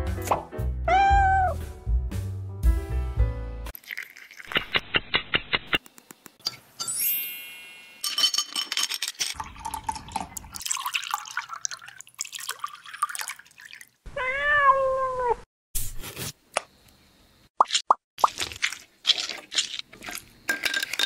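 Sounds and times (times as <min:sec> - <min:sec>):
cat meow: 0:00.9 - 0:01.6, 0:14.1 - 0:15.4
ice cubes clinking into glass: 0:03.8 - 0:04.5, 0:08.0 - 0:13.8, 0:18.2 - 0:21.0.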